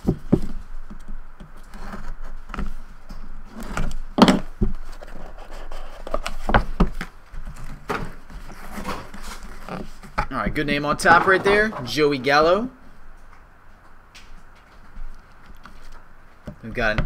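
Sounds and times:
cardboard box scraping and knocking: 3.4s - 12.0s.

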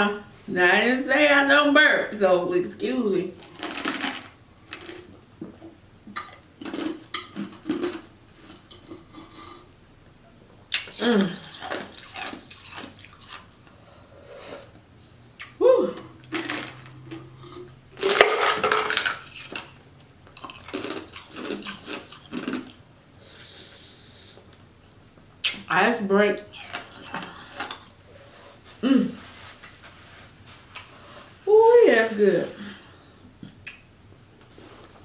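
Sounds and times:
wet mouth clicks: 10.7s - 13.5s, 25.4s - 25.7s, 33.4s - 33.9s.

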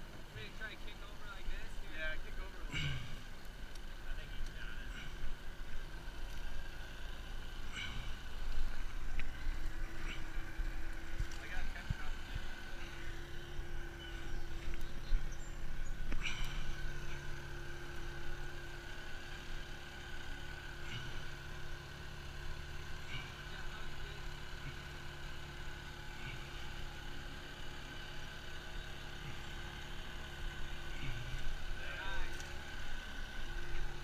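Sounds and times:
boat motor running: 0.0s - 34.0s
knocks and rustles of branches: 2.7s - 22.2s.

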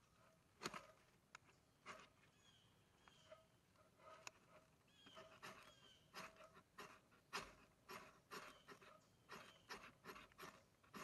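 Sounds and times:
knife rasping on flint striker: 5.2s - 11.0s.

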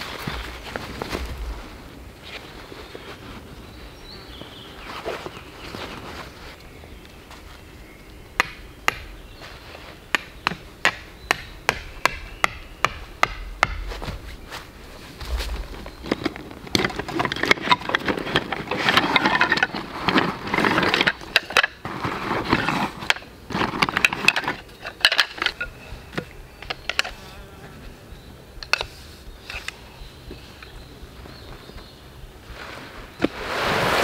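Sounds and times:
gear rustling and clattering: 15.2s - 25.7s.

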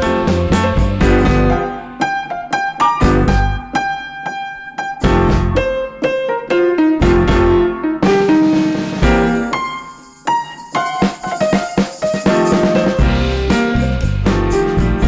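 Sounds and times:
bass notes: 0.0s - 2.0s, 3.0s - 3.8s, 5.0s - 5.9s, 7.0s - 7.9s, 9.0s - 9.5s, 12.9s - 15.0s
electric piano music: 0.0s - 15.0s.

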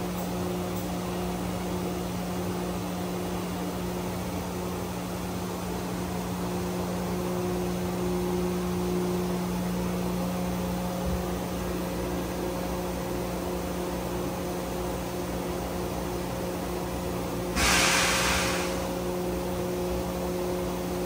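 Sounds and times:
low machine hum: 0.0s - 21.0s
fan-like hiss: 17.5s - 19.5s.

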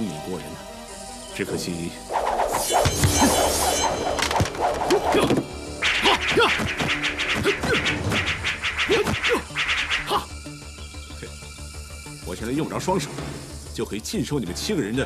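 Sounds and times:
dramatic action music: 0.1s - 15.0s
fight whooshes and blows: 2.1s - 10.3s.

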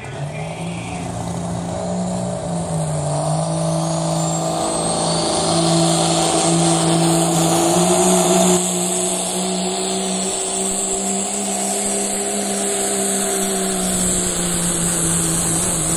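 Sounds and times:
diesel engine at full throttle: 0.0s - 15.9s.

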